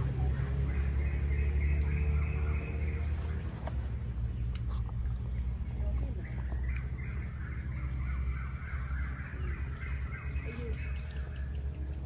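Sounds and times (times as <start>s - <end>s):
birds chattering: 0.0s - 12.0s.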